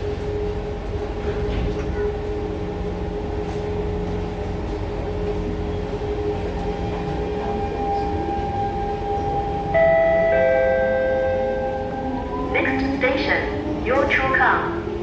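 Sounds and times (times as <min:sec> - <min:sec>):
train running rumble: 0:00.0 - 0:15.0
two-note electronic chime: 0:09.1 - 0:12.5.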